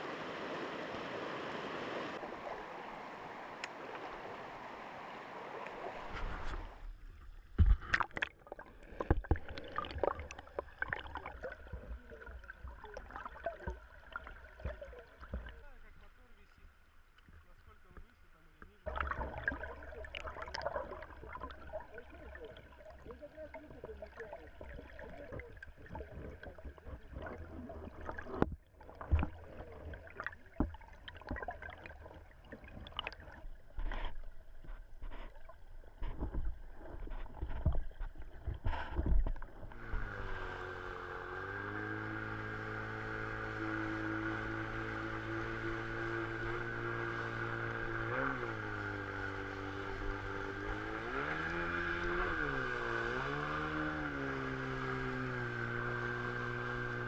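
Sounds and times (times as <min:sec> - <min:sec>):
muffled underwater water wash: 0:00.0 - 0:41.6
sharp underwater knocks and clicks: 0:07.5 - 0:15.6, 0:23.6 - 0:40.1
boat motor running: 0:09.2 - 0:16.5, 0:37.0 - 0:57.0.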